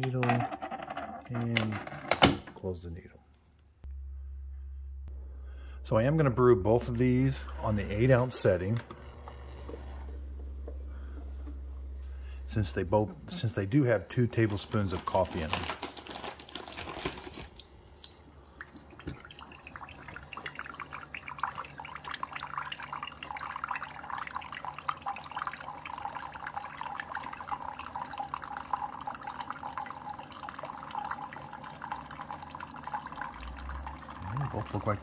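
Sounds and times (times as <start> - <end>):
low steady hum of coffee makers: 0.0 - 2.8, 5.8 - 35.0
coffee trickling into glass mugs: 7.3 - 35.0.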